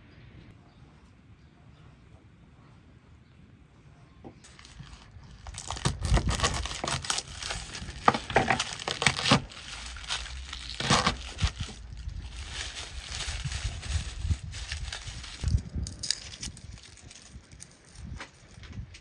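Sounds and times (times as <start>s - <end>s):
garlic skins crackling: 4.5s - 18.8s.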